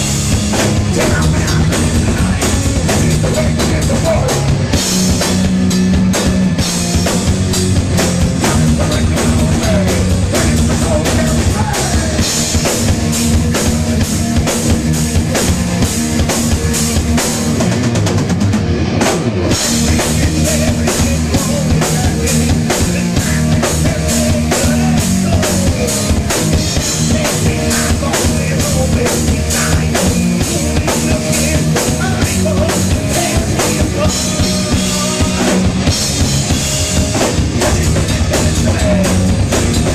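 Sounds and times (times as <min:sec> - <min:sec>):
fast heavy drumming: 0:00.0 - 0:39.9
heavy metal band playing: 0:00.0 - 0:39.9
lead vocals singing: 0:00.5 - 0:04.9, 0:08.3 - 0:14.5, 0:19.5 - 0:36.1, 0:37.2 - 0:39.9.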